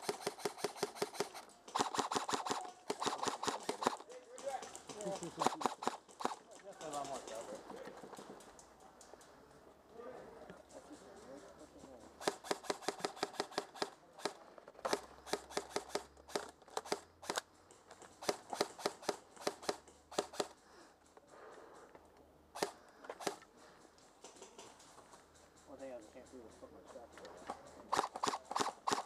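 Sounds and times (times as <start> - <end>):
airsoft gunfire cracks: 0.0 - 4.0.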